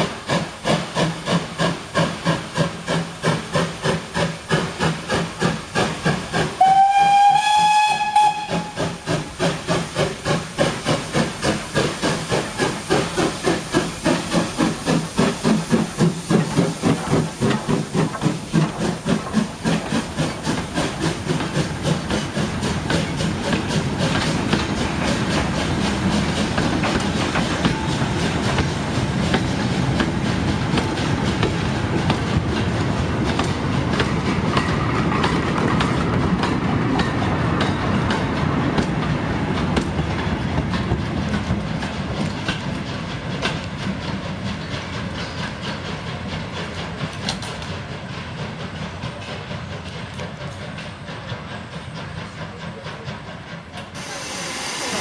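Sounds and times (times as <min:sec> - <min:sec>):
steam locomotive chuffing: 0:00.0 - 0:55.0
steam whistle blast: 0:06.6 - 0:08.9, 0:54.0 - 0:55.0.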